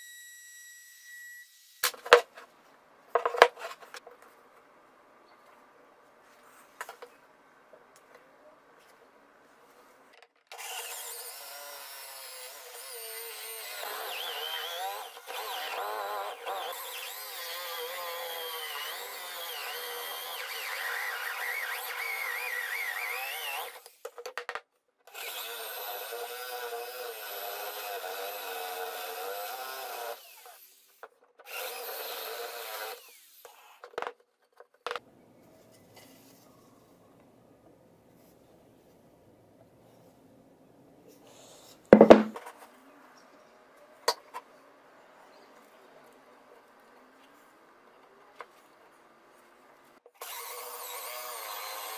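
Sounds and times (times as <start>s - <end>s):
electric drill boring wood: 10.5s - 24.0s, 25.1s - 33.8s, 50.2s - 51.9s.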